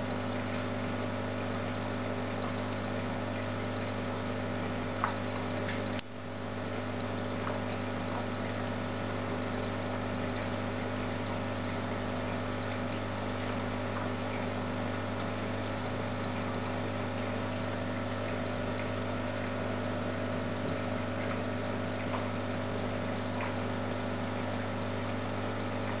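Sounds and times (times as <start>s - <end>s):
aquarium pump humming: 0.0s - 26.0s
moving water: 0.1s - 26.0s.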